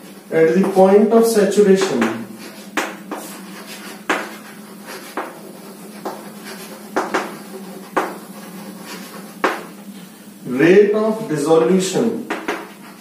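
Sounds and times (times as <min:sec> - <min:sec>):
chalk tapping on chalkboard: 0:00.0 - 0:01.0, 0:01.8 - 0:09.8, 0:11.6 - 0:13.0
faint chalk scratching: 0:01.8 - 0:09.8.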